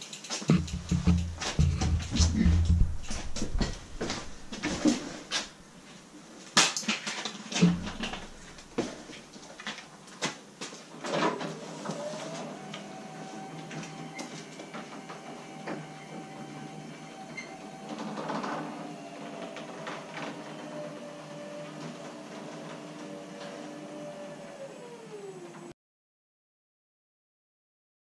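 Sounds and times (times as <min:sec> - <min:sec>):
sharp knocks and clicks: 0:00.1 - 0:05.5, 0:07.6 - 0:08.9
garage door opener motor humming: 0:07.6 - 0:09.3, 0:11.4 - 0:25.7.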